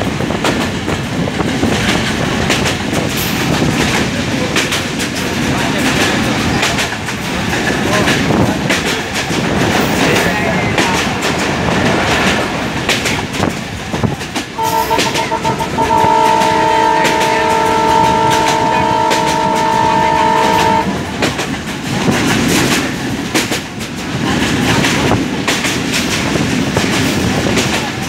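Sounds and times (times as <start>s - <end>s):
train wheels clacking over rails: 0.0s - 28.0s
train horn blasts: 14.6s - 21.0s.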